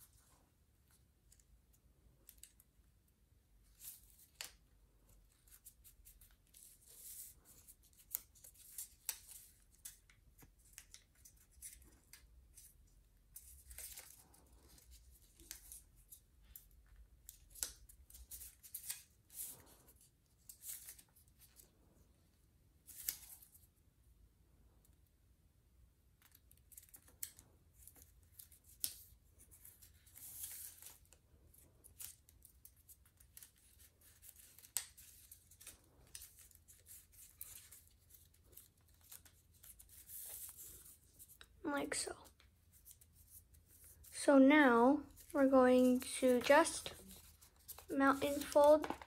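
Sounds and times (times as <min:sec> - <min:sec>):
paper rustling and scraping: 0:31.9 - 0:41.4, 0:45.1 - 0:49.0.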